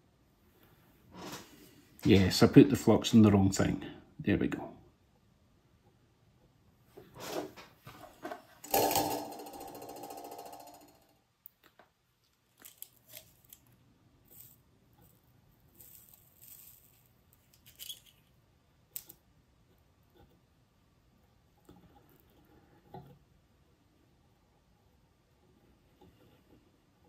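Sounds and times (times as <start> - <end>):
steady pitched buzz: 8.6 - 11.1.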